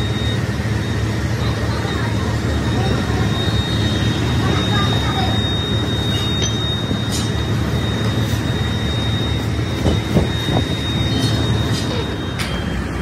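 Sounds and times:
constant high whine: 0.0 - 13.0
workshop machinery drone: 0.0 - 13.0.

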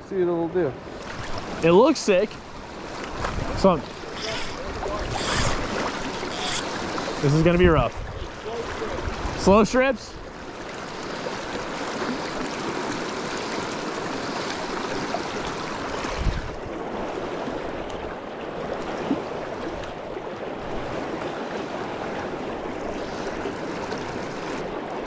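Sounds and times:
river water rushing over rocks: 0.8 - 19.8.

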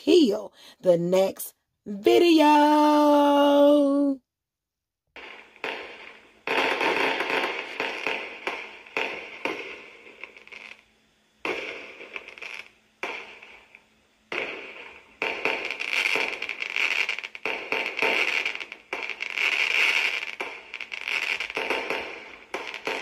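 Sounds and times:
fireworks bangs and crackle: 5.2 - 23.0.

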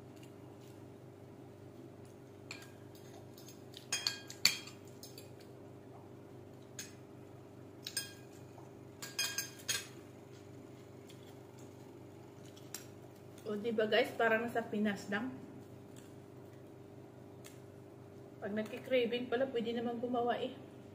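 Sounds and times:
steady low hum: 0.0 - 20.9
cutlery clinking on ceramic plate: 9.0 - 10.0.

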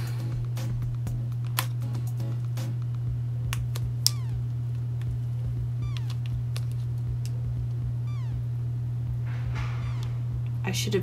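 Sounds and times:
steady low hum: 0.0 - 11.0
short falling squeaks: 4.1 - 4.4, 5.8 - 6.2, 8.1 - 8.4, 9.2 - 10.4.

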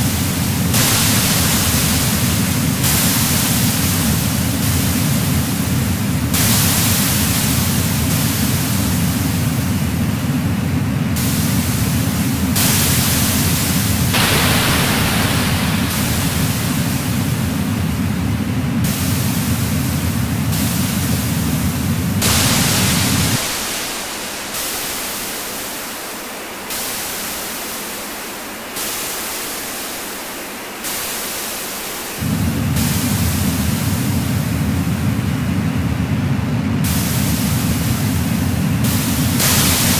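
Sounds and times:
filtered hiss switching on and off: 0.0 - 39.9
loud low rumble: 14.1 - 18.9, 32.2 - 39.9.

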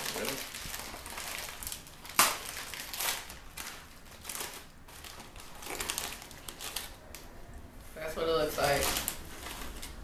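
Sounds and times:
chip bag ripping open: 0.0 - 7.0
bag crinkling and rustling: 0.0 - 7.2, 8.4 - 10.0.

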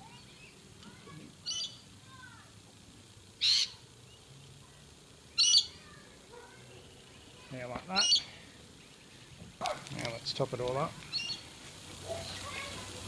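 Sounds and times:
high-pitched bird calls: 1.4 - 1.9, 3.4 - 4.3, 5.3 - 5.9, 7.1 - 9.4, 11.0 - 11.5.

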